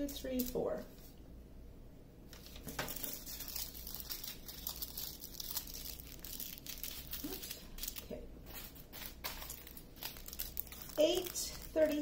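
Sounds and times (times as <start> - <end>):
plastic bags crinkling: 2.4 - 12.0.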